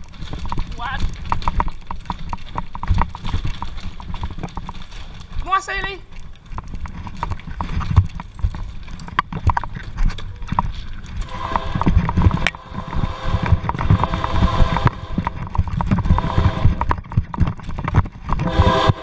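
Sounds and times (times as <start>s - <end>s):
bicycle clattering over ballast: 0.0s - 12.5s
hurried footsteps on ballast: 0.0s - 19.0s
low rumble: 9.7s - 19.0s
train horn: 11.3s - 17.0s, 18.4s - 19.0s.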